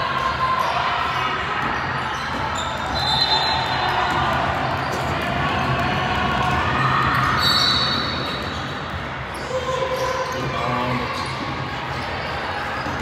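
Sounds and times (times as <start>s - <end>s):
echoing voices in gym: 0.0s - 13.0s
shoe squeak: 1.1s - 3.8s, 7.2s - 13.0s.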